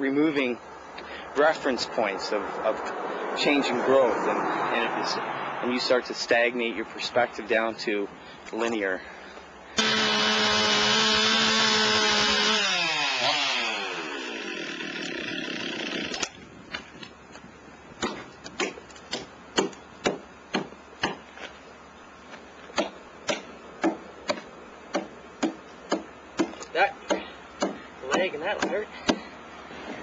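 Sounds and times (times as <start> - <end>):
power tool running and winding down: 9.8 - 16.3.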